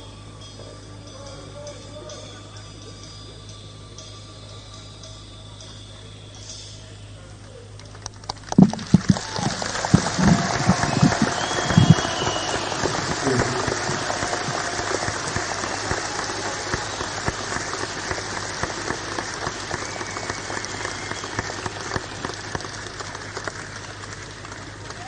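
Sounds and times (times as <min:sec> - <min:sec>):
audience applauding: 0:07.9 - 0:25.0
audience shouts: 0:09.0 - 0:23.0
person whistling: 0:10.6 - 0:14.1, 0:19.6 - 0:22.2.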